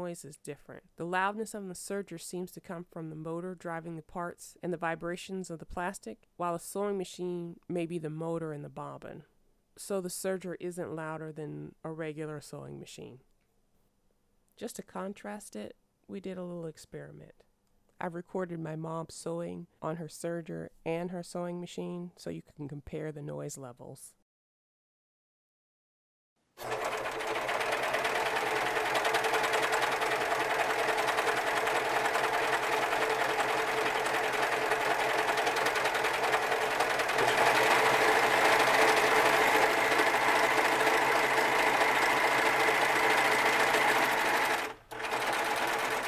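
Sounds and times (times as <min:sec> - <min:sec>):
serger stitching fabric: 0:26.6 - 0:46.0.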